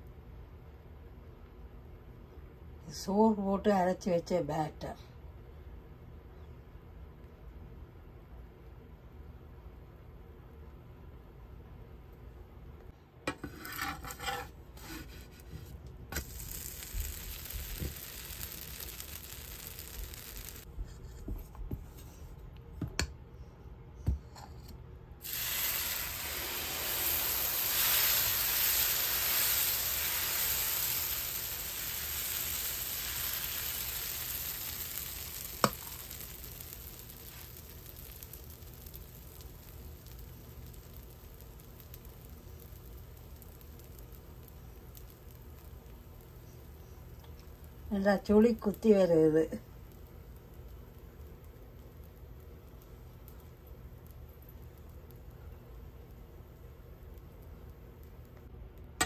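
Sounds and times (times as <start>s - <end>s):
utensils knocking and scraping pan: 13.3s - 15.6s
batter sizzling on hot pan: 13.3s - 20.8s, 24.3s - 59.0s.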